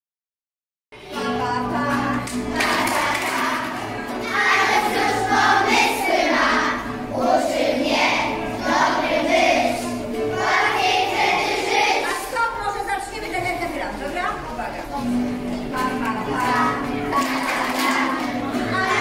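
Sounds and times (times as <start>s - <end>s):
children singing: 1.0s - 12.4s, 15.6s - 19.0s
strummed acoustic guitar: 1.0s - 19.0s.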